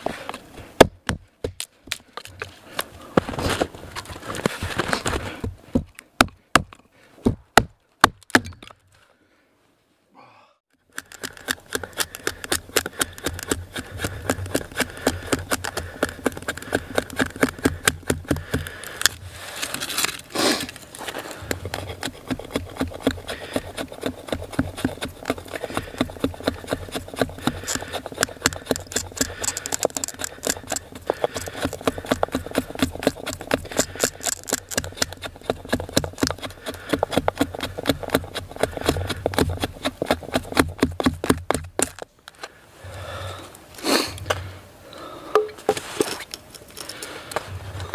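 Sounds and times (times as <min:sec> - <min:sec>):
hatchet shaving wood: 0:10.9 - 0:42.1.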